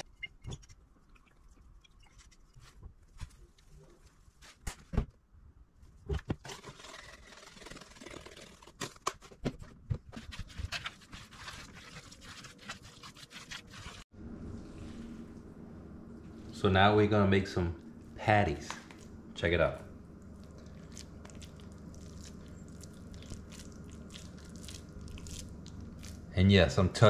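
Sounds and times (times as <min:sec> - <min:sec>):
spoon scraping mixture in bowl: 0:10.2 - 0:14.0
steady low hum: 0:14.0 - 0:27.0.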